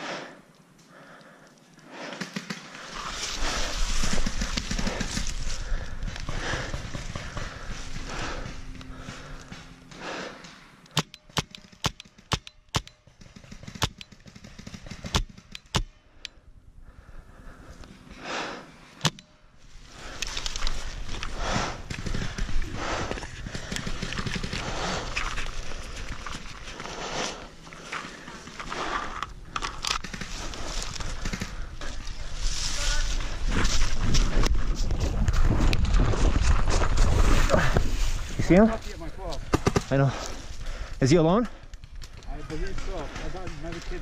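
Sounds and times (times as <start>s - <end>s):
paintball marker shots: 10.4s - 15.9s
gear rustling: 19.7s - 39.0s.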